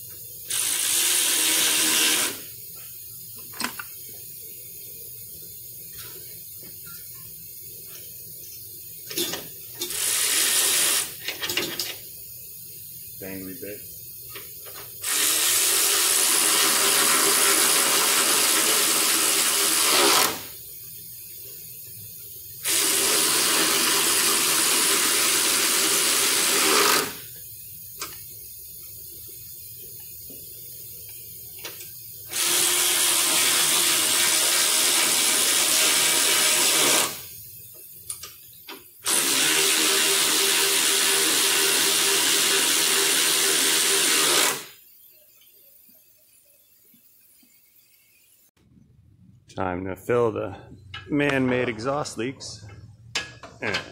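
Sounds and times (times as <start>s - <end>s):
power ratchet spinning: 0.5s - 2.6s, 9.8s - 11.6s, 14.4s - 20.7s, 22.6s - 27.3s, 32.3s - 37.4s, 39.0s - 48.4s.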